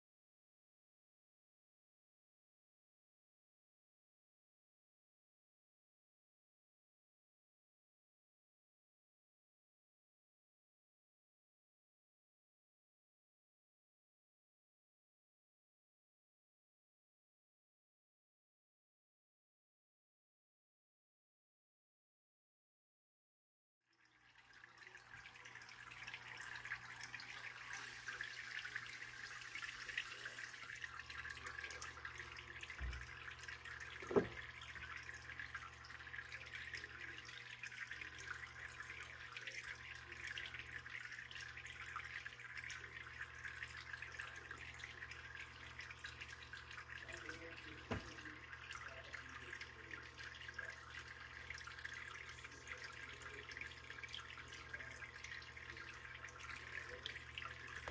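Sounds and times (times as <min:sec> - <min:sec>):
aquarium water trickling: 0:23.9 - 0:57.9.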